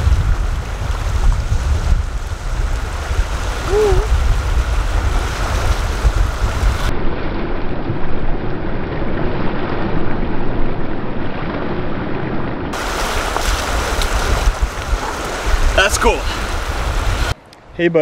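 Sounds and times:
small waves on lakeshore: 0.0s - 17.4s
wind buffeting microphone: 0.0s - 17.7s
splashing through water: 12.7s - 17.4s.

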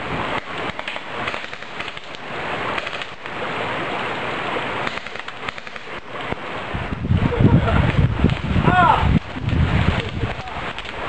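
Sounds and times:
microphone handling noise: 6.8s - 11.0s.

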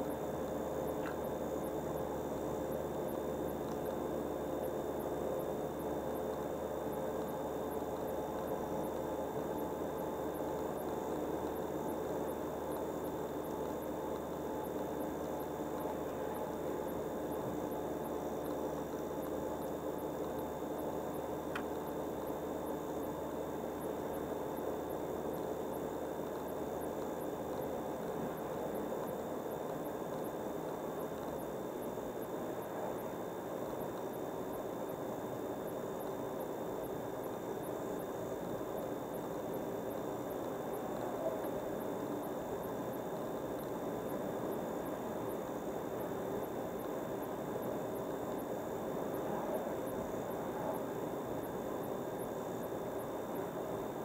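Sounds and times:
faint high whine: 0.0s - 54.0s.

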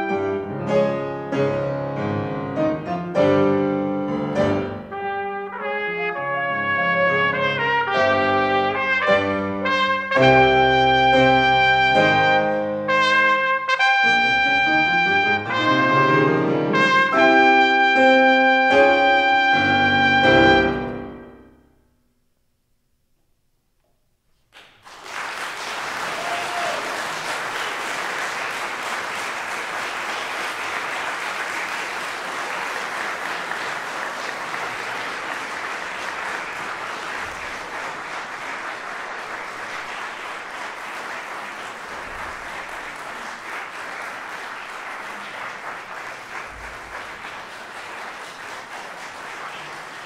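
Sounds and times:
audience applauding: 24.5s - 50.0s.

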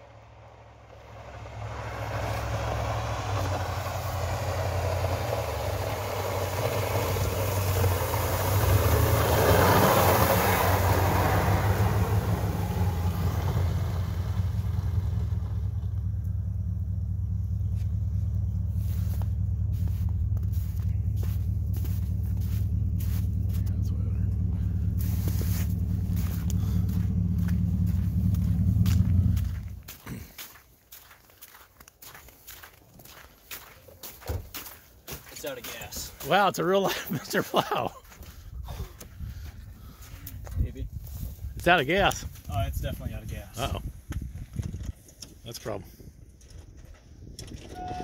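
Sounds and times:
truck plowing snow passing: 0.0s - 38.5s
steady low rumble: 10.6s - 31.0s, 37.1s - 45.2s.

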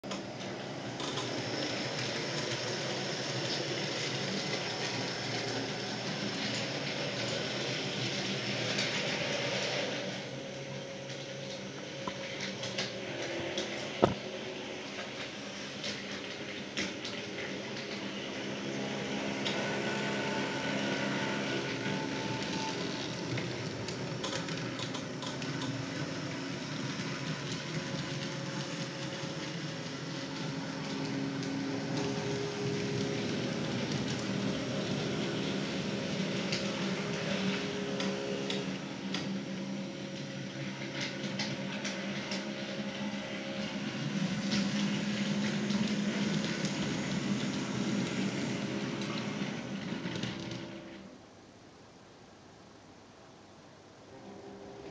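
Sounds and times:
model tram motor humming: 0.0s - 51.0s.

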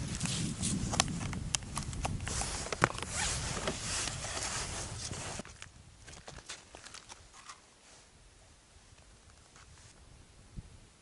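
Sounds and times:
scraping and rustling handling noise: 2.2s - 8.0s.

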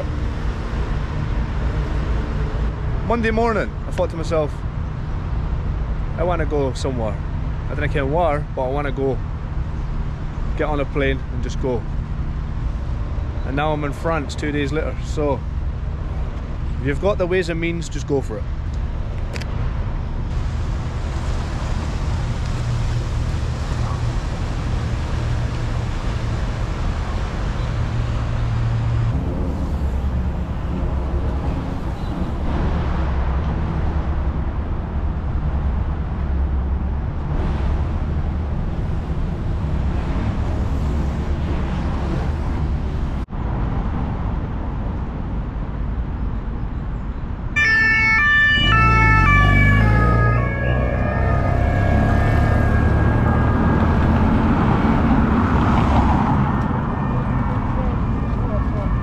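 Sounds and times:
low rumble of city traffic: 0.0s - 59.0s
loud music: 47.6s - 53.9s.

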